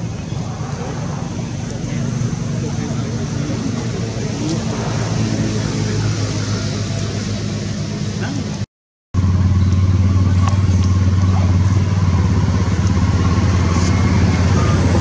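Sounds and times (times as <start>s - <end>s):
low engine hum: 0.0s - 15.0s.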